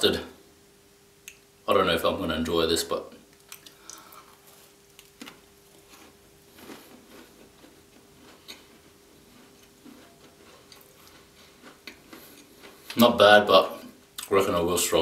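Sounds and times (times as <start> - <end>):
faint steady hum: 0.0 - 15.0
chewing crunches and mouth clicks: 3.3 - 13.1.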